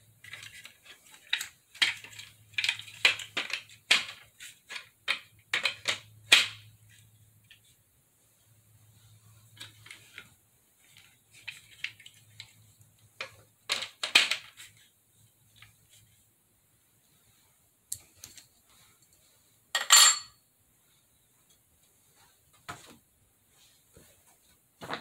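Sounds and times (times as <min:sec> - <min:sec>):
plastic parts knocking and clicking: 0:00.2 - 0:06.8, 0:13.2 - 0:14.8
plastic clatters: 0:00.2 - 0:07.7, 0:09.5 - 0:14.9.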